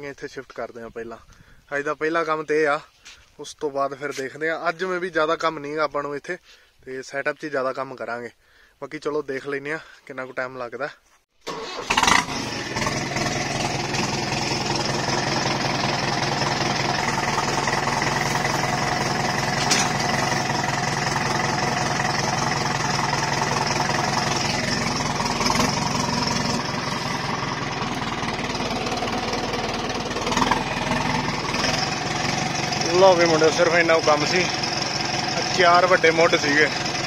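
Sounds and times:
tractor diesel engine running: 11.5 - 37.0.

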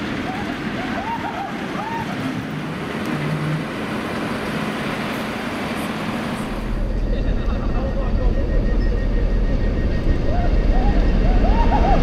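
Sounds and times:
diesel locomotive rumbling: 0.0 - 12.0.

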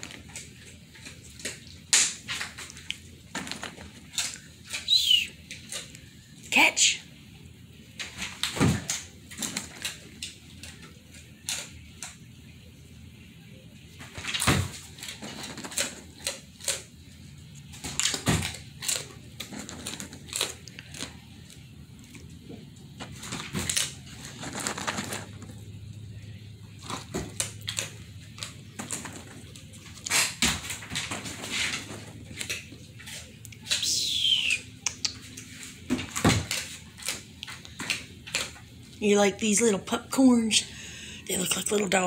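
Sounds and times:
dog claws clicking on wooden floor: 0.0 - 4.9, 8.0 - 12.2, 14.2 - 17.0, 17.6 - 22.2, 26.8 - 33.8, 34.9 - 38.7
dog chewing crunchy treats: 0.0 - 6.4, 7.9 - 12.3, 14.0 - 39.2.

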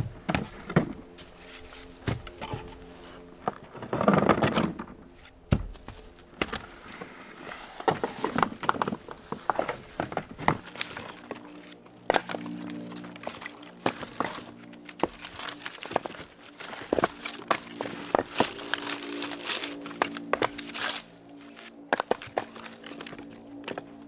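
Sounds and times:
wooden logs knocking together: 0.0 - 11.5, 12.1 - 12.5, 13.1 - 21.0, 21.9 - 23.9
scraping rustle: 0.2 - 11.8.

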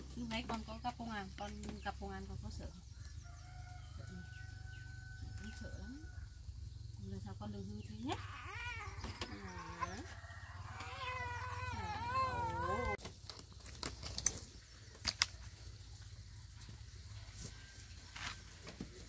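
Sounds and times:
baby crying: 8.1 - 13.0
faint clicks and rustles: 13.0 - 19.0.

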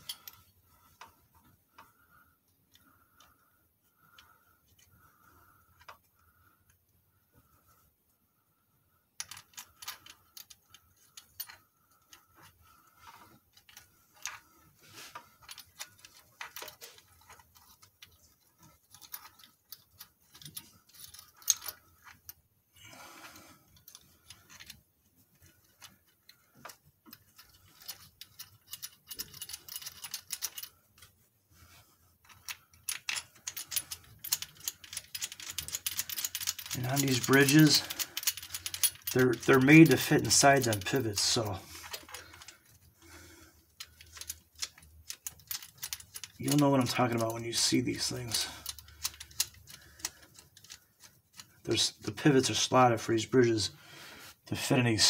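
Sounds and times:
metallic clicks and clinks: 0.0 - 1.1, 9.2 - 22.4, 25.4 - 31.1, 32.2 - 52.8.

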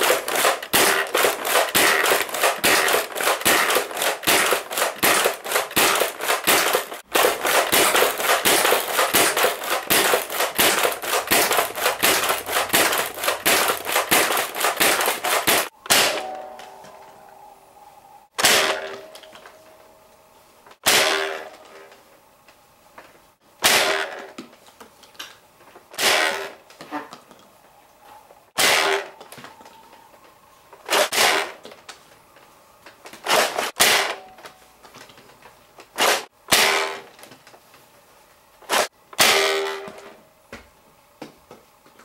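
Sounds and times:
toy blaster priming and firing: 0.0 - 16.2, 28.6 - 29.2, 33.2 - 34.2
toy blaster single shots: 0.0 - 16.4, 18.4 - 19.0, 20.8 - 21.6, 23.6 - 24.2, 28.6 - 29.2, 33.2 - 34.3, 38.7 - 39.9.

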